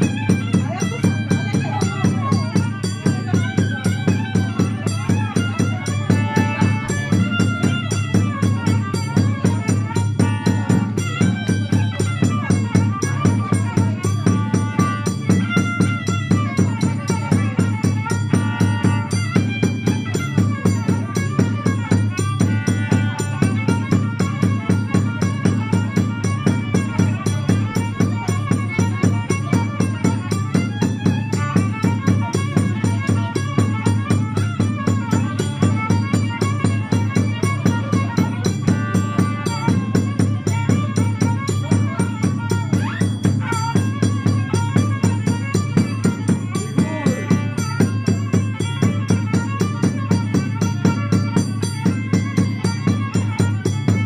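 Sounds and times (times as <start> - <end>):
steady bass drum beat: 0.0 - 53.2
horn violin folk melody: 0.0 - 54.0.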